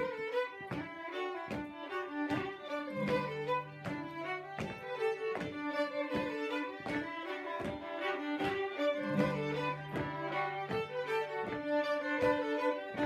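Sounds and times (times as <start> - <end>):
fiddles playing: 0.0 - 13.0
acoustic guitar strumming: 8.8 - 13.0.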